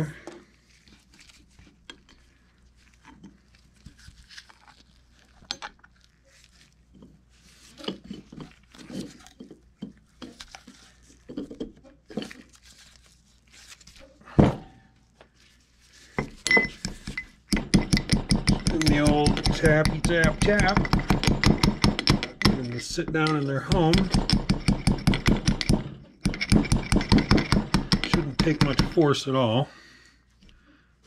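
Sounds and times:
rustling of gloved hands: 0.4 - 17.6
heavy knock of pump head: 23.8 - 29.0.

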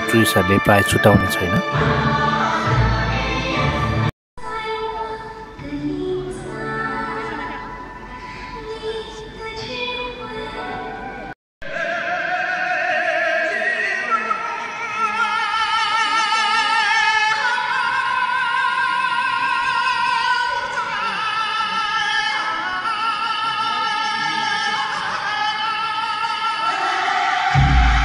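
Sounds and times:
operatic solo voice singing: 0.0 - 1.7
stage-show music: 0.0 - 2.2.

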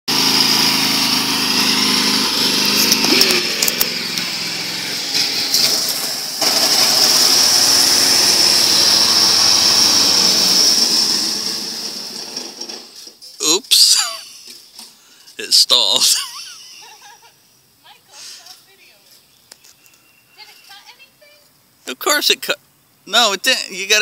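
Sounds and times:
lawn tractor engine running: 0.1 - 14.7.

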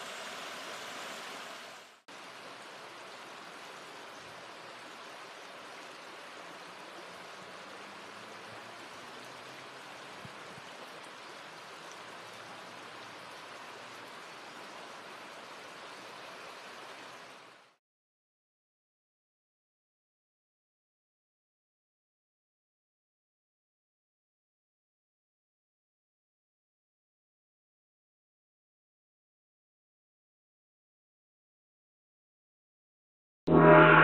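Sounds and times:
river running over rocks: 0.0 - 17.8.

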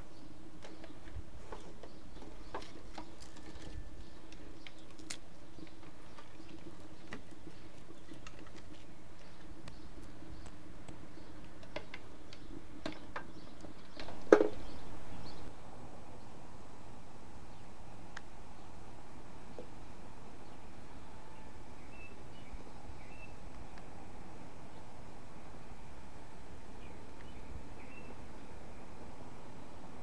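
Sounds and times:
twig fire crackling: 0.6 - 15.5.

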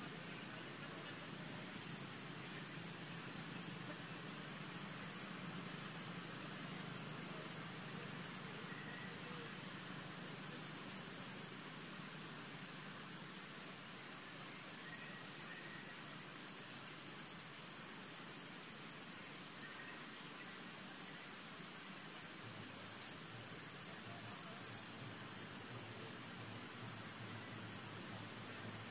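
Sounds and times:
insects singing: 0.0 - 28.9.

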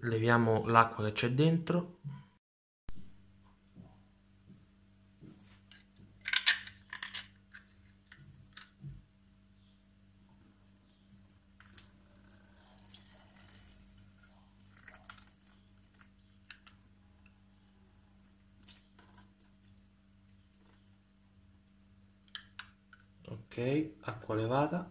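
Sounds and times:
liquid trickling into a steel sink: 11.3 - 16.6.

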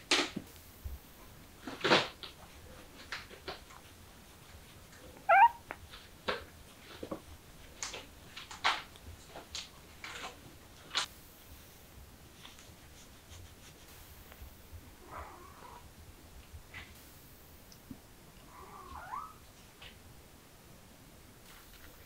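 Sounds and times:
kitten mewing: 5.2 - 5.8.

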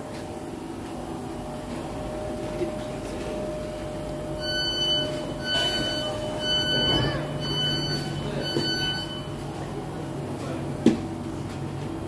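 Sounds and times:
electric train humming: 0.0 - 12.0
door warning beeps: 4.3 - 9.6.

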